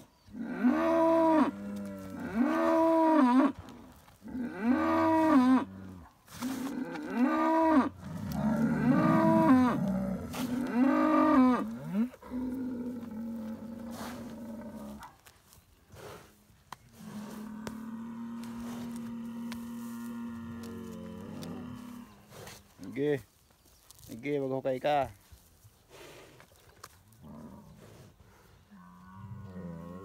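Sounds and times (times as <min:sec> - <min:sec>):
bull moaning: 0:00.4 - 0:15.0, 0:16.9 - 0:23.0, 0:28.7 - 0:30.0
bull bellowing: 0:04.2 - 0:15.1, 0:16.9 - 0:23.0.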